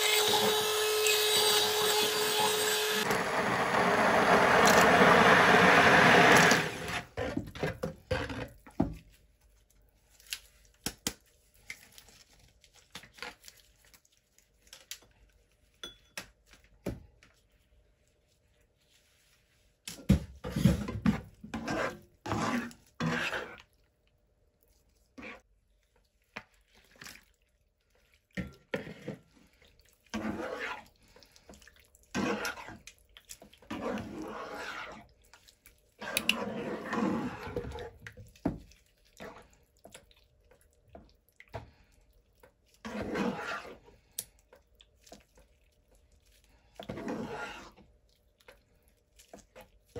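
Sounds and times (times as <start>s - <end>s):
stick blender running: 0.0s - 7.1s.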